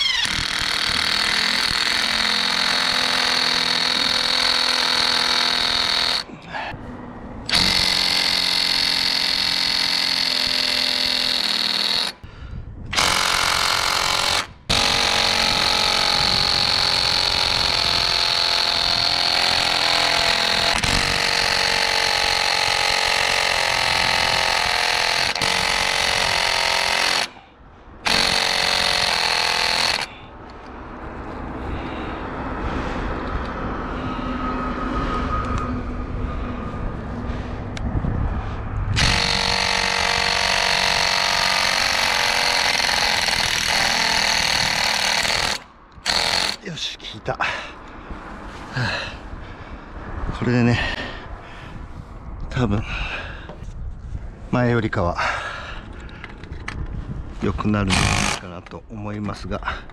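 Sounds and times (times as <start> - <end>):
power drill running: 0.0 - 6.3, 7.5 - 12.2, 12.9 - 27.4, 28.0 - 30.1, 39.0 - 46.6, 57.9 - 58.4.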